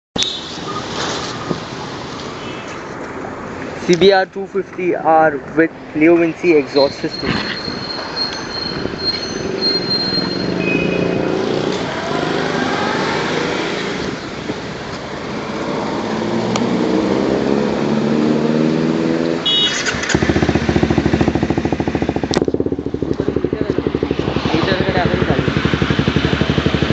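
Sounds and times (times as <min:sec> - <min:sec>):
motorcycle engine revving: 0:07.2 - 0:26.9.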